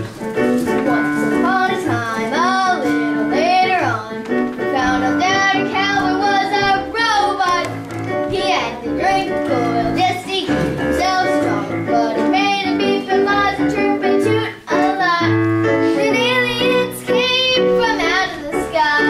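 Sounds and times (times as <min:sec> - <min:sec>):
held instrumental notes: 0:00.0 - 0:19.0
children singing: 0:08.3 - 0:19.0.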